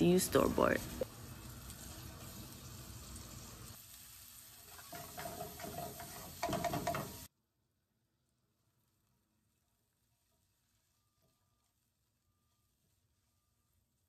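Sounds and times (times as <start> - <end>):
onions sizzling in a pan: 0.0 - 7.3, 9.6 - 11.9
spatula scraping a pan: 4.4 - 7.3.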